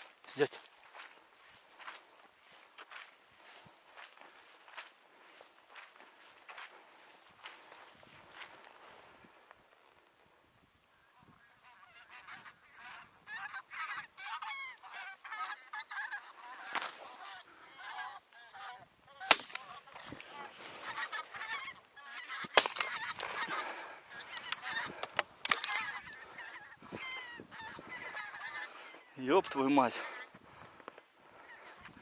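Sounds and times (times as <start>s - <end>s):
geese honking: 10.9s - 32.0s
shotgun shots: 19.3s - 19.8s, 22.5s - 23.0s.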